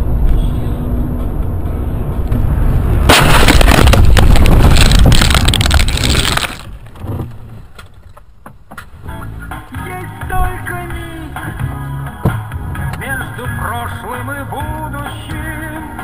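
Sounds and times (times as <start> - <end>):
road and engine rumble: 0.0 - 16.0
car crash crunching metal: 3.0 - 7.1
glass breaking: 3.1 - 6.7.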